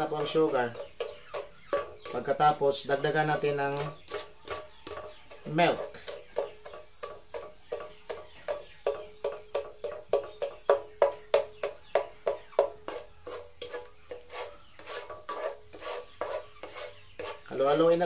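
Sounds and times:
spatula scraping sugar in a pan: 0.0s - 18.0s.

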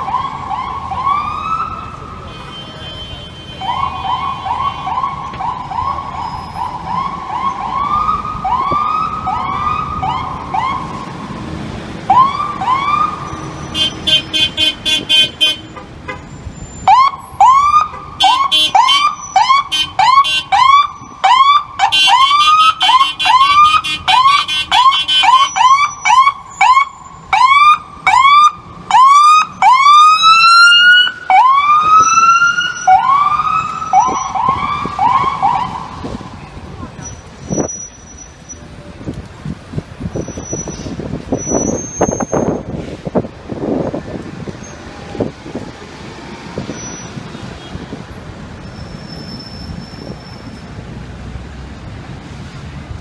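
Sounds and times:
ambulance siren yelping: 0.0s - 2.1s, 3.6s - 11.3s, 12.1s - 14.2s, 16.8s - 36.3s.

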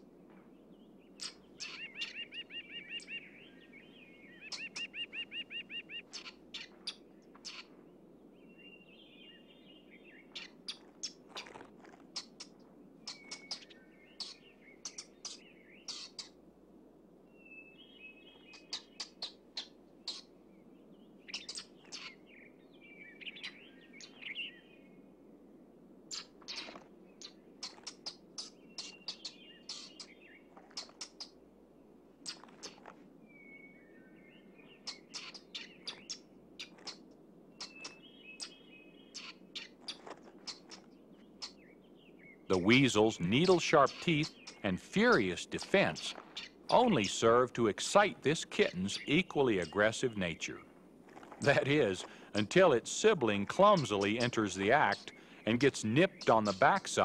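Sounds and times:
weasel chattering trills: 1.2s - 3.2s, 4.4s - 7.7s, 10.3s - 16.4s, 18.5s - 20.3s, 21.3s - 22.2s, 26.1s - 31.4s, 32.2s - 32.9s, 34.8s - 41.7s, 42.5s - 50.6s, 51.2s - 57.0s
weasel squeaking and chirping: 1.2s - 3.2s, 4.3s - 7.8s, 10.3s - 16.4s, 18.4s - 20.3s, 21.3s - 22.2s, 26.1s - 31.4s, 32.2s - 33.6s, 34.7s - 41.7s, 42.5s - 47.2s, 51.1s - 57.0s.

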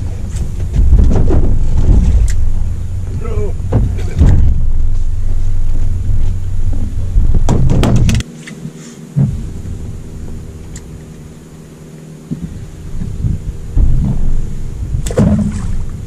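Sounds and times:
wind buffeting microphone: 0.0s - 8.3s, 12.2s - 16.0s
faint steady hum: 0.0s - 16.0s
thump: 3.7s - 4.7s, 7.2s - 8.2s, 9.2s - 9.4s
sharp clicks and knocks: 6.8s - 8.6s.

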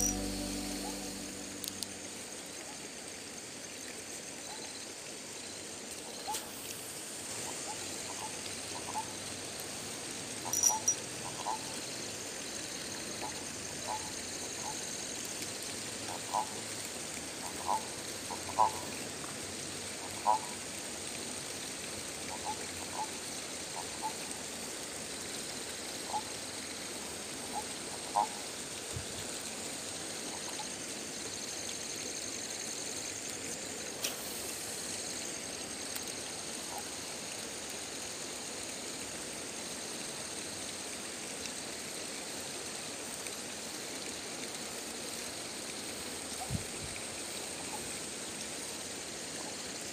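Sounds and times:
high-pitched insect drone: 0.0s - 2.7s, 10.5s - 11.0s
background hiss: 0.0s - 49.9s
frogs calling: 10.4s - 12.0s, 12.7s - 15.2s, 16.0s - 19.1s, 20.0s - 20.6s, 26.0s - 26.7s, 27.4s - 28.6s.

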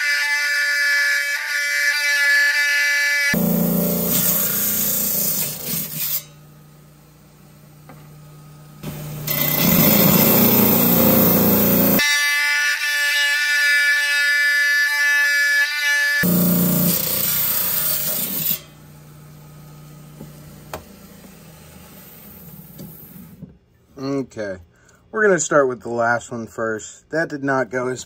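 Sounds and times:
high saw blade whine: 0.0s - 6.5s, 8.8s - 18.9s
stone saw grinding: 1.3s - 6.4s, 8.9s - 14.4s, 16.0s - 18.8s.

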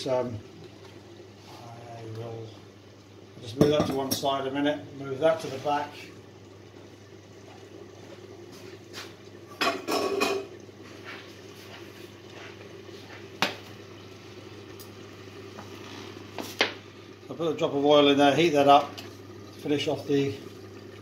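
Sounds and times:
steady low hum: 0.0s - 21.0s
saucepans clattering on glass hob: 3.5s - 4.4s, 9.5s - 10.6s.

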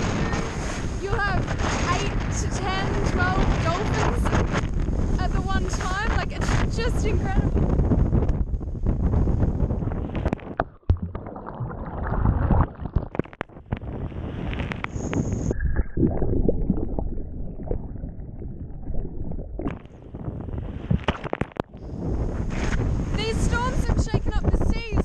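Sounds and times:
water rushing and gurgling: 9.9s - 22.0s.

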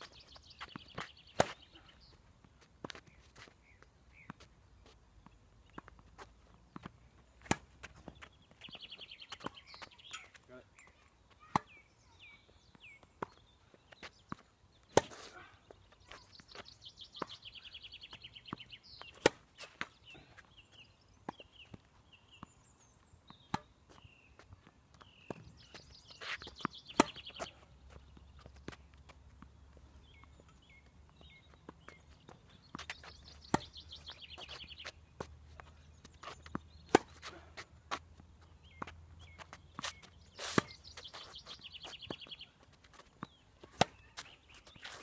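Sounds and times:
birds chirping: 0.0s - 45.0s
rackets striking tennis ball: 0.7s - 1.8s, 6.8s - 8.2s, 14.9s - 15.3s, 23.4s - 23.8s, 26.3s - 35.3s, 35.9s - 37.7s, 43.2s - 45.0s.

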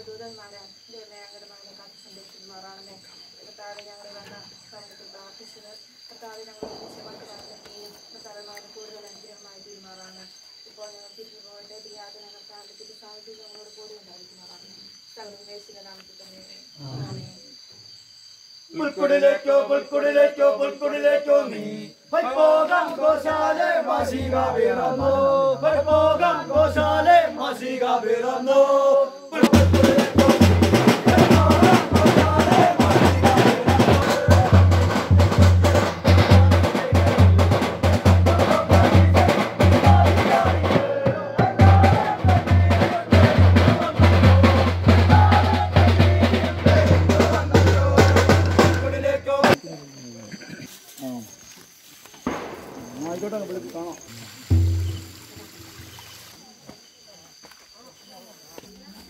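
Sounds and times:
group singing a carol: 18.7s - 49.6s
loud fast drumming: 29.4s - 49.6s, 54.5s - 55.9s
low drum beats: 29.4s - 49.6s, 54.5s - 56.0s.

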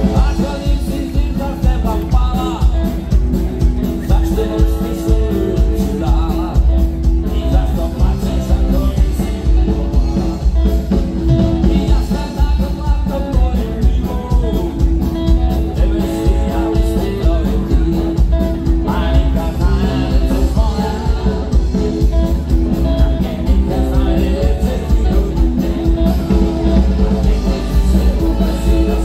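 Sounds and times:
bass guitar: 0.0s - 29.0s
drum kit beat: 0.0s - 29.0s
electric guitars: 0.0s - 29.0s
person singing: 0.0s - 29.0s.

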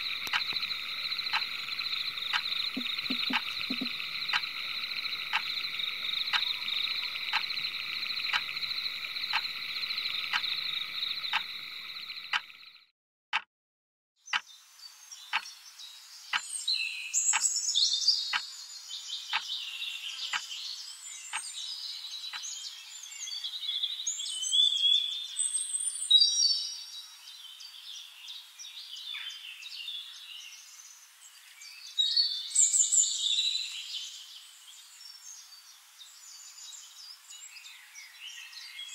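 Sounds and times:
sharp regular clicks: 0.0s - 10.7s, 11.3s - 11.6s, 12.3s - 12.5s
frog chorus trilling: 0.0s - 12.8s.

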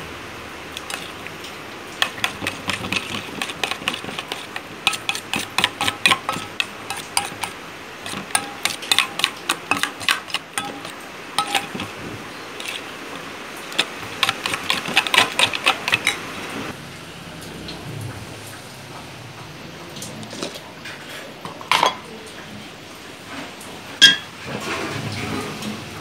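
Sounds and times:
metal spoon clinking on steel bowl: 0.8s - 1.3s, 2.0s - 12.0s, 12.6s - 16.3s, 21.5s - 22.1s, 24.0s - 24.3s.

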